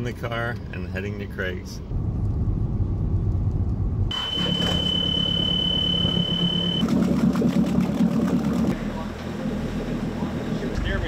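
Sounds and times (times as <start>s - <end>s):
car engine rumble: 0.0s - 11.0s
high-pitched electronic beep: 4.1s - 6.8s.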